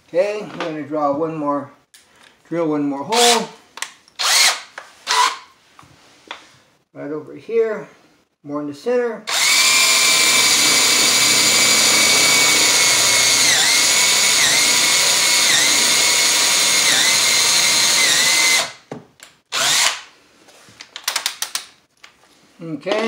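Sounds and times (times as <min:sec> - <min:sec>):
cordless drill boring into wood: 0:04.2 - 0:05.4, 0:09.3 - 0:18.8, 0:19.5 - 0:20.1.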